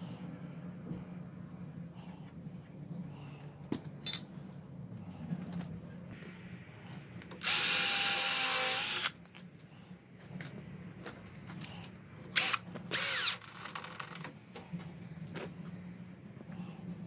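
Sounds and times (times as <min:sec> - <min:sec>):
cordless drill whirring: 0:07.4 - 0:09.2, 0:12.4 - 0:14.2.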